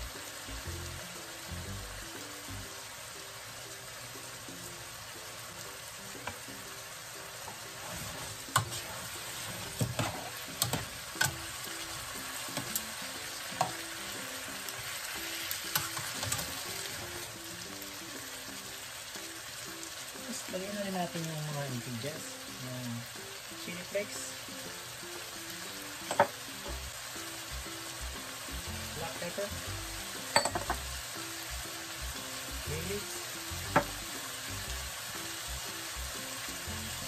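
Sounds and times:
pork sizzling in a frying pan: 0.0 - 37.0
utensil scraping a pan: 7.7 - 10.9.

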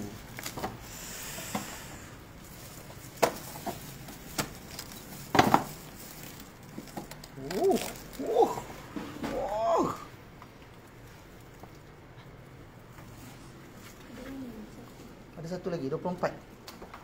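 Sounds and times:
rustling: 2.3 - 9.5
husk cracking: 2.6 - 13.0.

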